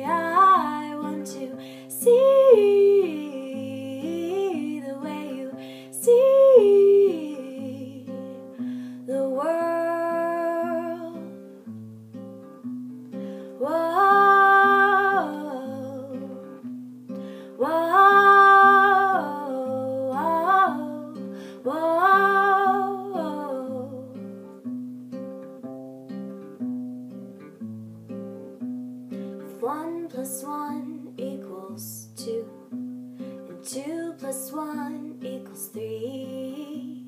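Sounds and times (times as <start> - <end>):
woman singing: 0.0 - 11.4, 13.4 - 16.6, 17.4 - 24.4, 29.4 - 32.8, 33.4 - 37.0
acoustic guitar picking: 0.0 - 37.0.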